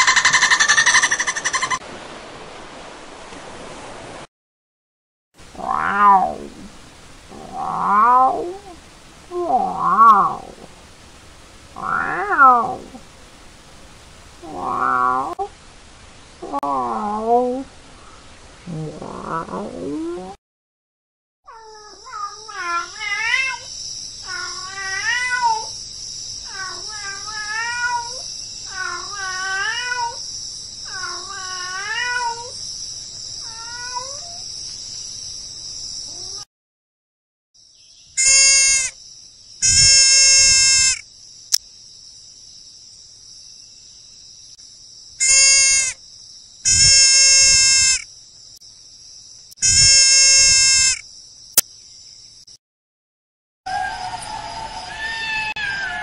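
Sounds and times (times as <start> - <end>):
steady high hiss: 5.4 - 17.0, 22.5 - 36.2.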